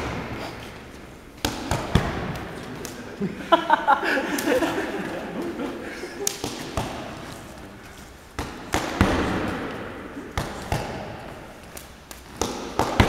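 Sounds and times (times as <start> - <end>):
arms striking and blocking: 0.0 - 3.0, 6.2 - 7.5, 8.3 - 13.0.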